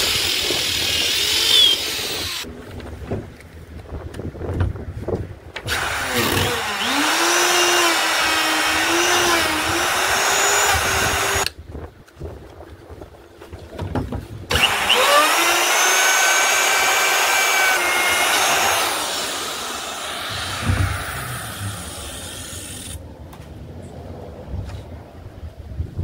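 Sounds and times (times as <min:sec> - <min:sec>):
electric router whining: 0:00.0 - 0:02.5, 0:05.7 - 0:11.5, 0:14.5 - 0:23.0.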